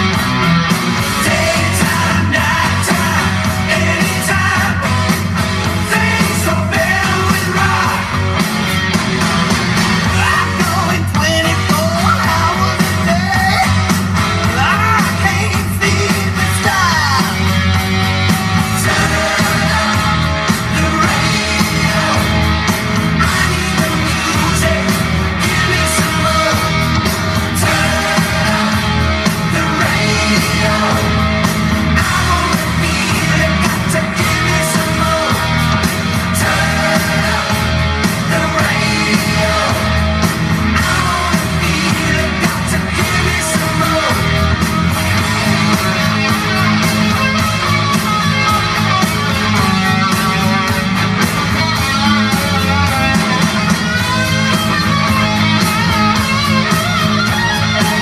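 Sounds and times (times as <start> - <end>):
singing over a full band: 0.0 - 8.9, 9.5 - 51.0.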